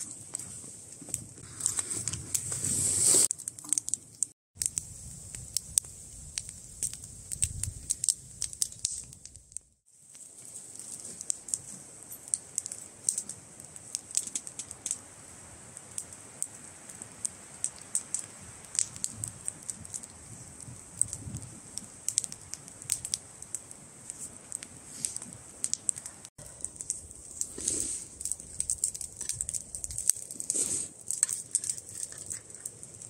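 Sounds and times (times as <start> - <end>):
campfire crackling and popping: 0.0 - 33.0.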